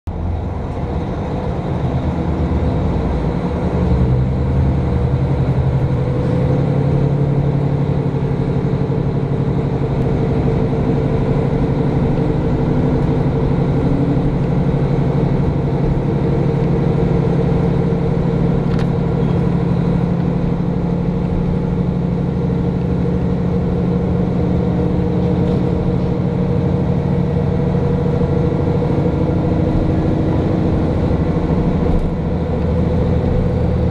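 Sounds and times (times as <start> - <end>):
diesel train engine drone: 0.0 - 33.9.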